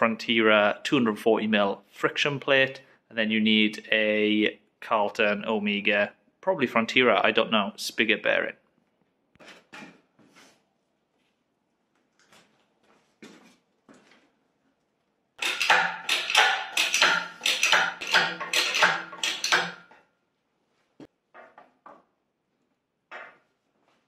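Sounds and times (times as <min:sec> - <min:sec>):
metal clattering and rattling: 0:15.4 - 0:20.0
sharp metal clicks: 0:15.4 - 0:20.0.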